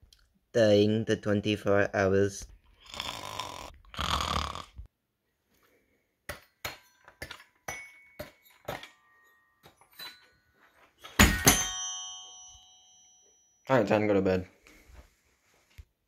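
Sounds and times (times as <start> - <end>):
person snoring: 2.8 - 4.9
glockenspiel notes: 7.6 - 14.4.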